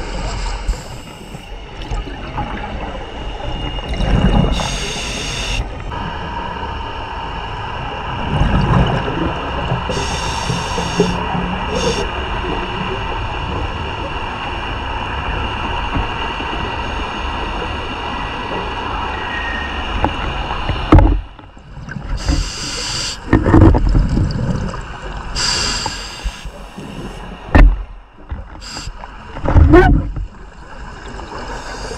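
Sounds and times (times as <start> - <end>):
exhaled bubbles rumbling: 0.0 - 6.6, 7.4 - 14.5, 23.2 - 25.6, 26.2 - 31.9
underwater mechanical drone: 0.0 - 31.9
diver inhaling through regulator: 4.5 - 5.6, 9.9 - 12.1, 22.2 - 23.3, 25.4 - 27.4, 28.6 - 29.0, 31.4 - 31.9.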